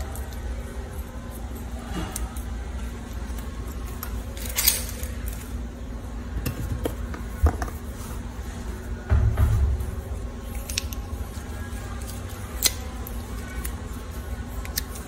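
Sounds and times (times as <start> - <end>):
scissors snipping a plastic straw: 12.6 - 12.8.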